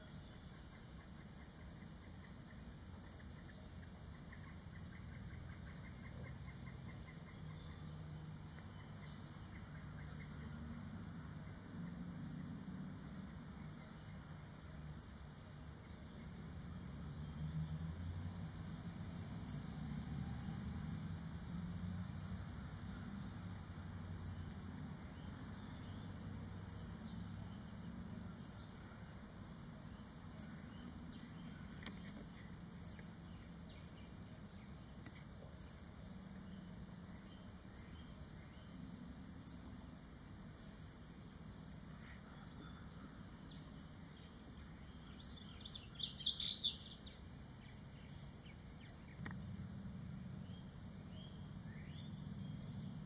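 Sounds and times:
songbird chip calls: 0.0s - 11.4s, 24.2s - 29.0s, 29.9s - 38.8s, 40.7s - 53.0s.

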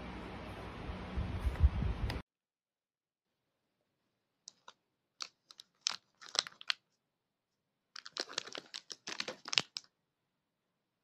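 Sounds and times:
plastic packaging crinkling: 4.5s - 6.9s, 8.0s - 9.9s.

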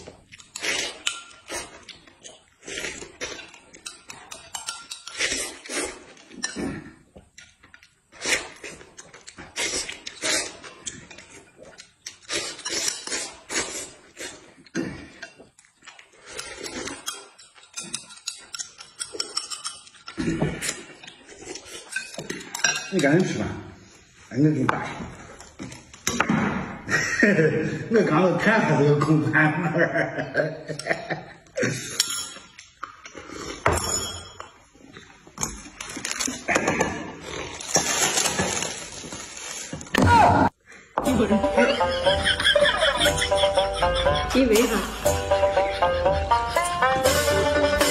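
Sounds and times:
person slurping soup: 0.0s - 7.5s, 8.1s - 19.3s, 32.9s - 33.7s
eating noises: 0.0s - 23.0s
spoon and chopsticks clicking dishes: 17.0s - 20.1s
tableware clinking and knocking: 17.0s - 20.1s, 21.9s - 23.3s, 32.0s - 32.7s, 33.7s - 34.6s.

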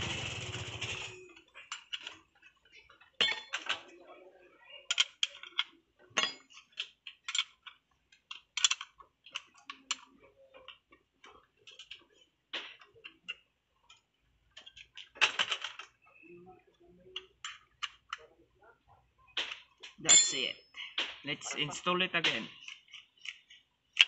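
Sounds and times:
small metal clicks and taps: 4.9s - 16.1s, 22.2s - 24.0s.

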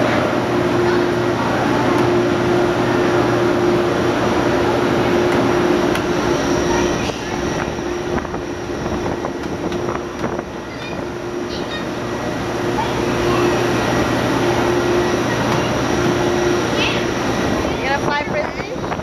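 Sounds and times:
mechanical whir with hum: 0.0s - 19.0s.

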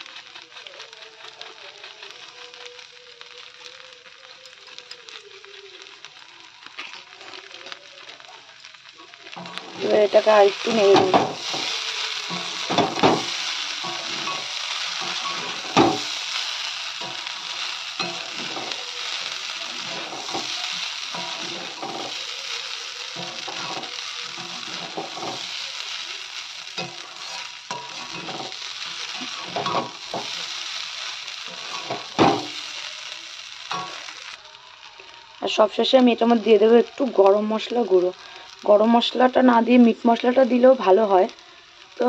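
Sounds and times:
food sizzling in a pan: 0.0s - 42.0s
spatula scraping and knocking pan: 9.4s - 25.6s, 26.8s - 32.6s.

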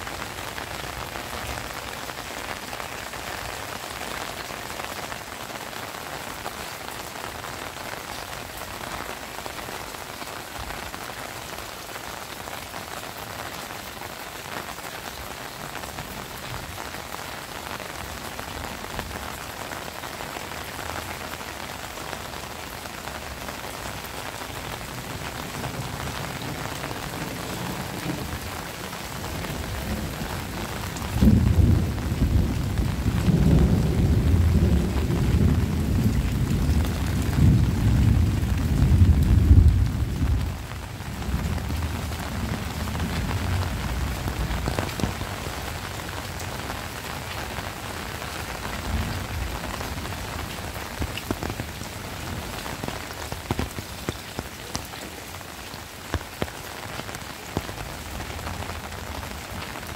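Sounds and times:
heavy rain: 0.0s - 59.9s
thunder rumble: 24.8s - 45.9s.

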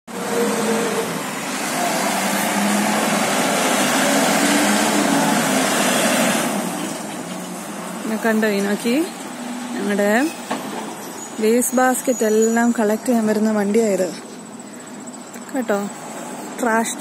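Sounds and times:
truck engine revving: 0.1s - 10.5s.

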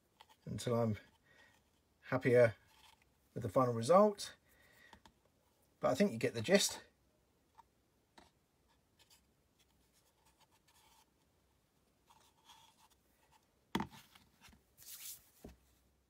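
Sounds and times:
faint rubs and taps: 12.1s - 15.7s.

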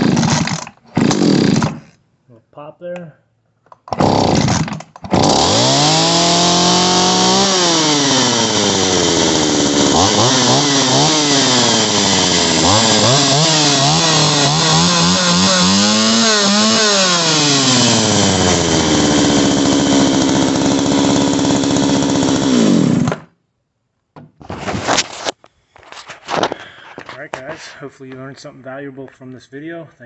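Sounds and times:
chainsaw revving and idling: 0.0s - 2.0s, 3.9s - 23.3s.

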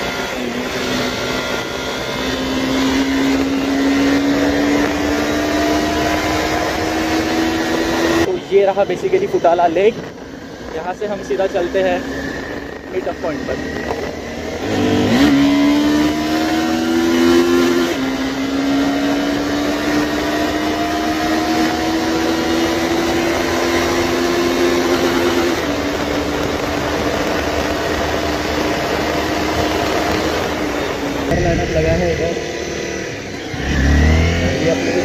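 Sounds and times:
wind on microphone: 0.0s - 18.2s
motorcycle engine revving: 0.0s - 35.0s.

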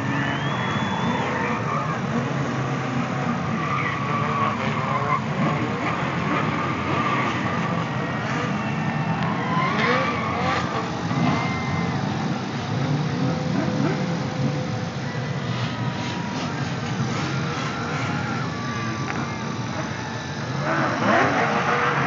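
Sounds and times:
tyre squeal: 0.0s - 2.3s, 3.2s - 7.6s, 9.3s - 12.0s
car engines revving: 0.0s - 22.0s.

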